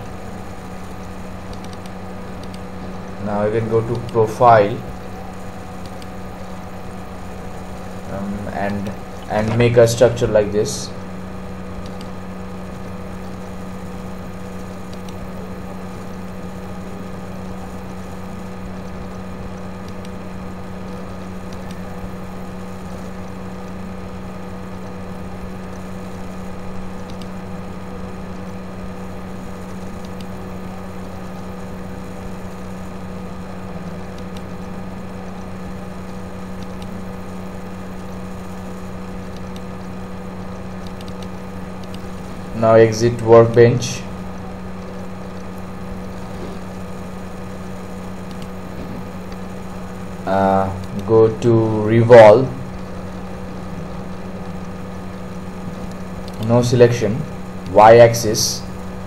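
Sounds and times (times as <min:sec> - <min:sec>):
electrical hum: 0:00.0 - 0:59.0
faint clicks: 0:27.0 - 0:27.3, 0:40.5 - 0:42.2, 0:48.2 - 0:48.5.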